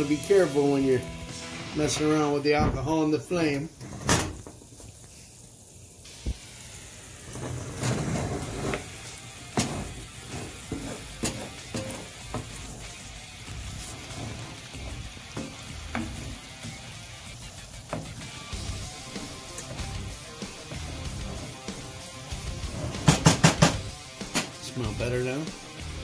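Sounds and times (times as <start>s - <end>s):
sauce bubbling and sizzling: 0.0s - 2.3s, 3.2s - 24.6s, 25.6s - 26.0s
wooden spoon knocking pan: 14.7s - 16.9s, 17.9s - 18.4s.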